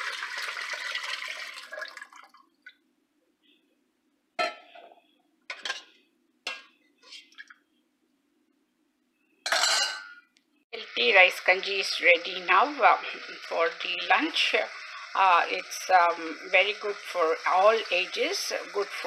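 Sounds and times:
water pouring into metal pot: 0.0s - 2.6s, 11.2s - 19.0s.

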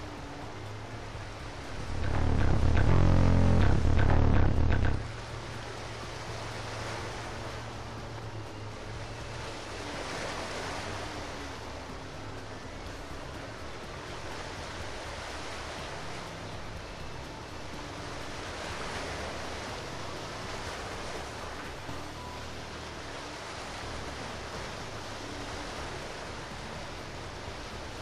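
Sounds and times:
low steady hum: 0.0s - 9.6s
wind: 0.0s - 28.0s.

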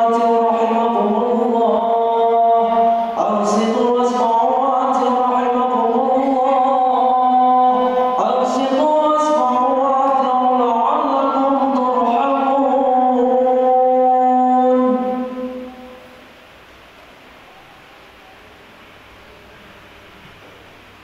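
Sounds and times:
man chanting: 0.0s - 16.0s.

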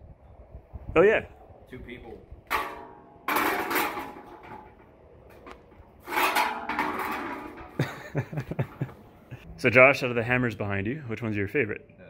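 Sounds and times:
metal shields scraping and clanking: 2.5s - 9.4s.

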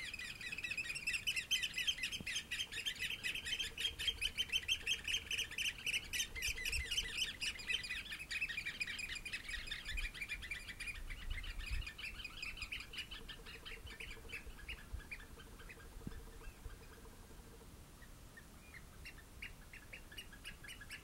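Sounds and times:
oystercatchers piping calls: 0.0s - 21.0s.

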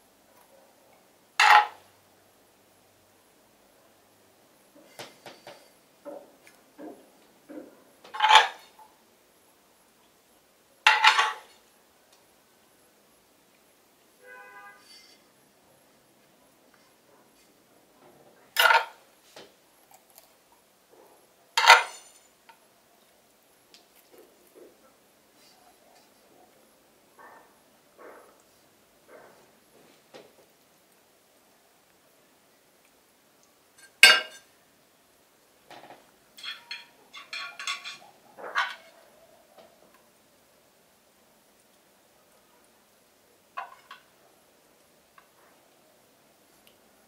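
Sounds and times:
metal pot clinks and knocks: 10.9s - 11.4s, 21.6s - 22.2s, 33.8s - 34.5s, 36.4s - 38.8s
metal spoon knocking a pan: 34.0s - 34.4s
spoon clinking against pan: 36.4s - 38.1s.

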